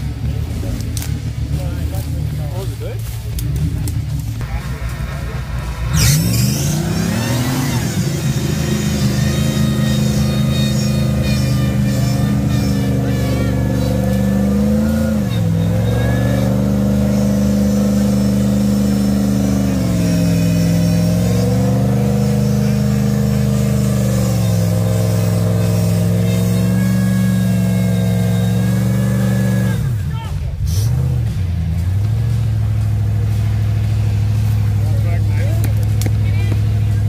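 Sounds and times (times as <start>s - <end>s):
truck engine at high revs: 0.0s - 37.0s.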